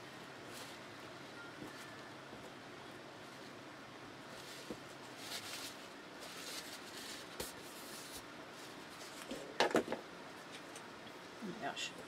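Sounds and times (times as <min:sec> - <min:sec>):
paper rustling: 0:04.3 - 0:09.4.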